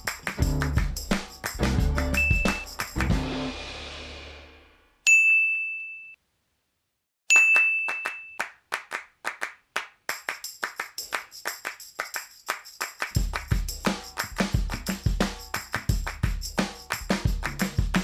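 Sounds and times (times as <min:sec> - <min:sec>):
music with a beat: 0:00.0 - 0:03.9, 0:12.8 - 0:18.0
bright sound effect dings: 0:05.1 - 0:06.2, 0:07.3 - 0:08.4.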